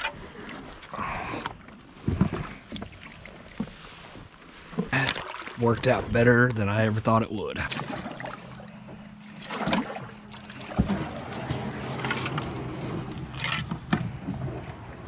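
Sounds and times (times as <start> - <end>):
paddle splashes: 0.0 - 6.3, 7.6 - 15.0
steady low hum: 5.0 - 15.0
paddle knocking against hull: 9.4 - 14.6.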